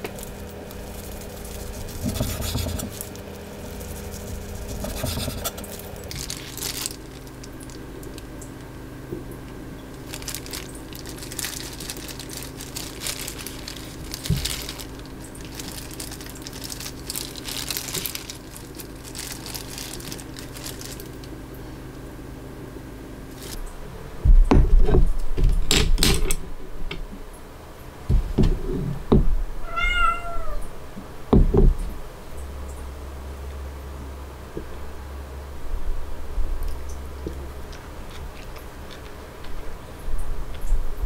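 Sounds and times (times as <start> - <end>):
scraping and rustling: 0.0 - 8.2, 9.9 - 21.3, 23.3 - 23.6
steady low hum: 0.0 - 41.0.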